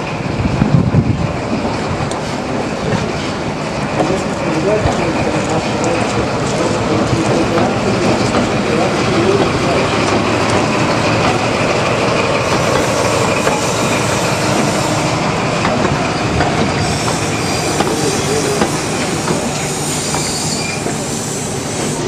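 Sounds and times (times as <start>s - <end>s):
diesel train engine running: 0.0s - 22.0s
train wheels on track: 0.0s - 22.0s
wheels clicking over rail joints: 2.0s - 14.0s.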